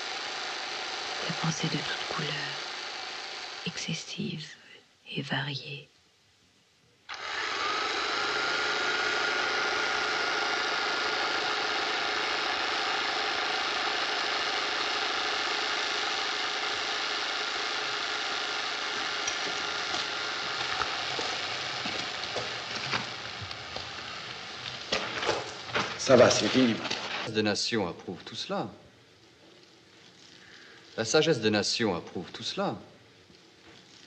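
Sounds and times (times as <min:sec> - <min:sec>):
loud mechanical running noise: 0:00.0 - 0:03.9, 0:07.1 - 0:27.3
thin steady whine: 0:00.0 - 0:34.0.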